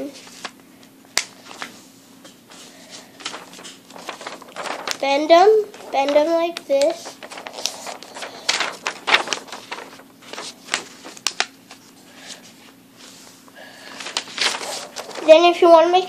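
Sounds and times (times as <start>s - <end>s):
paper folding and creasing: 2.5s - 12.0s, 13.8s - 16.0s.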